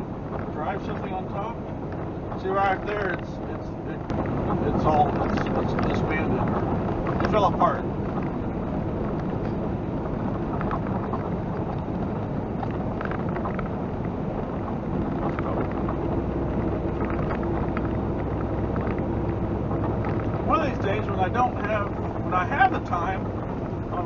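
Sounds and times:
diesel truck engine drone: 0.0 - 24.0
road noise: 0.0 - 24.0
faint clicks: 12.6 - 19.1.

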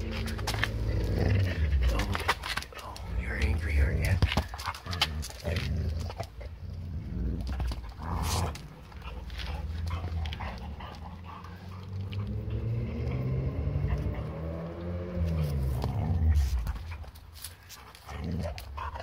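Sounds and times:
knocks and scuffs on concrete: 0.0 - 6.3, 7.1 - 12.3, 15.2 - 18.7.

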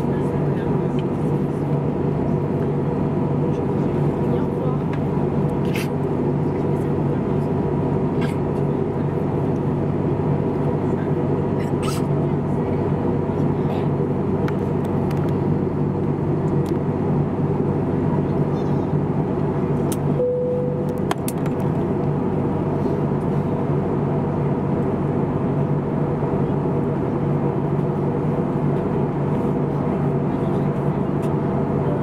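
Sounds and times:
airliner cabin engine drone: 0.0 - 32.0
clear tone: 20.2 - 21.1.

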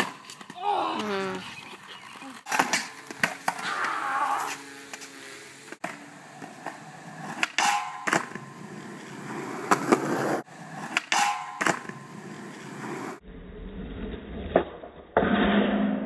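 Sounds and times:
skateboard wheels rolling on concrete: 0.0 - 16.0
skateboard clacking on ground: 1.4 - 5.1, 5.8 - 12.8.

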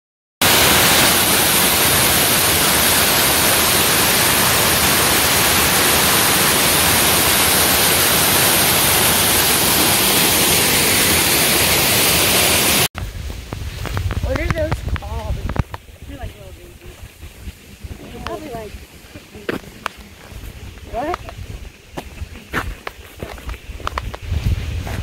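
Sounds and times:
waterfall rushing: 0.4 - 12.9
low rumble: 13.0 - 23.2.

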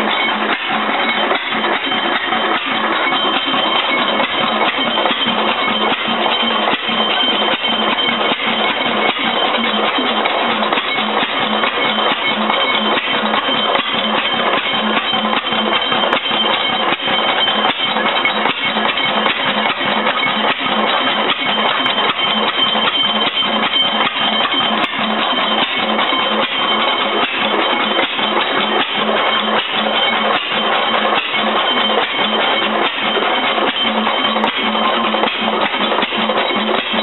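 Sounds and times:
single-cylinder engine running: 0.0 - 37.0.

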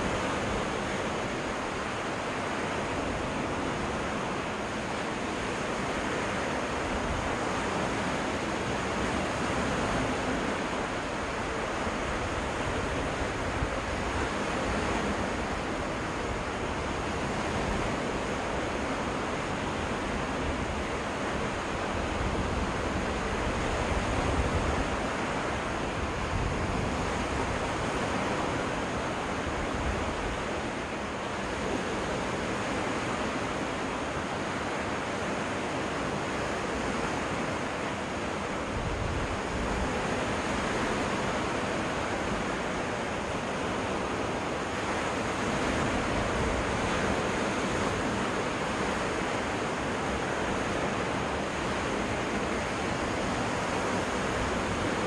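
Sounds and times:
waves washing onto beach: 0.0 - 55.0
wind rumbling on microphone: 19.8 - 30.8, 38.5 - 42.6.

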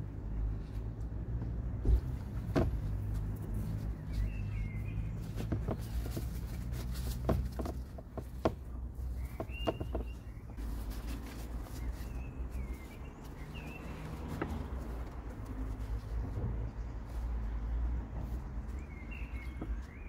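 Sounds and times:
small birds chirping: 3.0 - 20.0.

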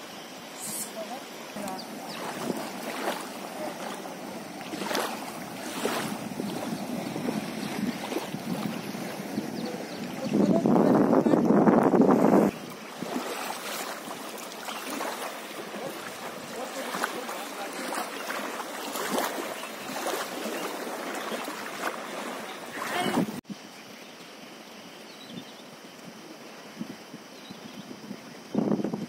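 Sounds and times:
rushing river water: 0.0 - 23.4
water lapping at bank: 0.0 - 23.4
wind noise on microphone: 4.4 - 13.4, 22.6 - 23.6, 26.7 - 29.0.

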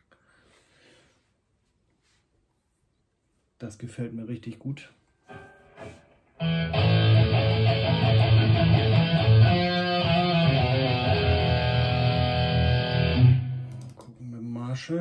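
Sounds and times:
electric guitar playing: 5.3 - 13.8.

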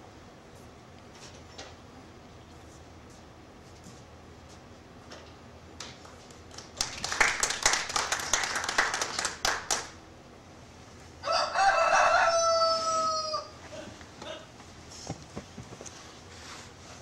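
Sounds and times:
rooster crowing: 11.2 - 13.8.

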